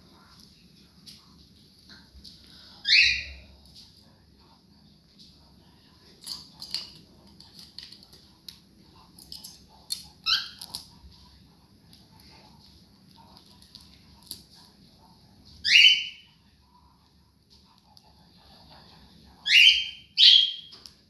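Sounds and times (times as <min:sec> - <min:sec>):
cockatiels chirping: 0:02.8 - 0:03.4, 0:15.6 - 0:16.3, 0:19.4 - 0:20.8.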